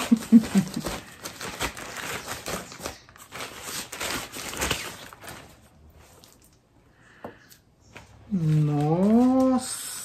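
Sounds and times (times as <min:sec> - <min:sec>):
plastic bag crinkling: 0:00.0 - 0:06.8.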